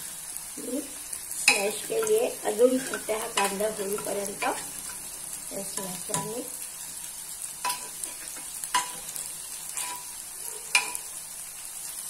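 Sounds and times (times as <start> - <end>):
frying sizzle: 0.0 - 12.0
metal spoon clinking on pot: 10.7 - 11.0.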